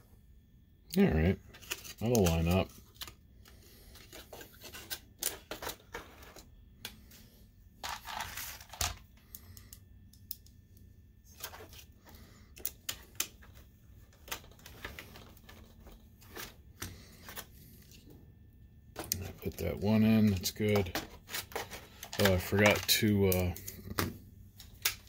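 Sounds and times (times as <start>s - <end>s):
plastic and metal parts clicking: 20.2s - 25.0s.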